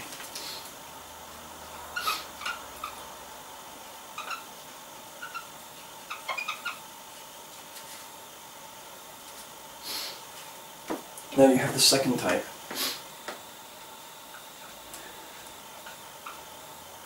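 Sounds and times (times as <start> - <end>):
marker squeaking on whiteboard: 2.0 - 3.0, 4.2 - 4.5, 5.2 - 6.8.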